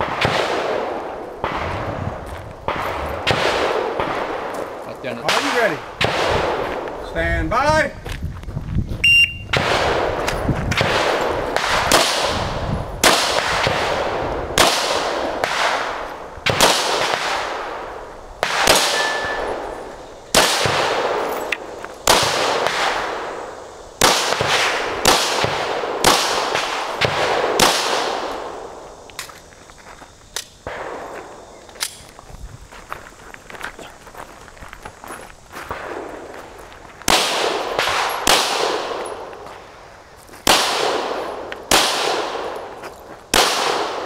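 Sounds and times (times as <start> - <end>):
pistol shots with echo: 0.0 - 6.9, 9.5 - 23.4, 24.0 - 28.8, 37.1 - 39.4, 40.4 - 42.7, 43.3 - 44.0
shot timer beep: 9.0 - 9.4.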